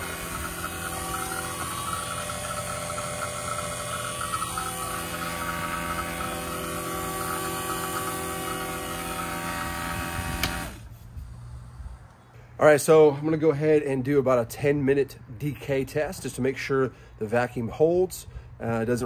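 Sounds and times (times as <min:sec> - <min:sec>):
vacuum pump humming: 0:00.0 - 0:12.0.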